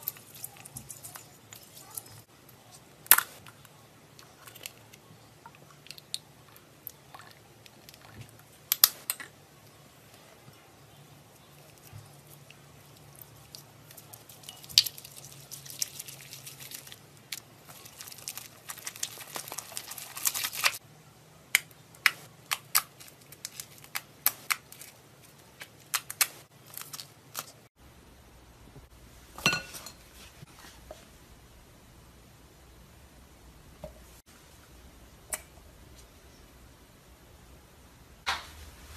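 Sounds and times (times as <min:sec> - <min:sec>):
crunchy slime crackling and popping: 0:11.6 - 0:20.8, 0:21.5 - 0:27.6.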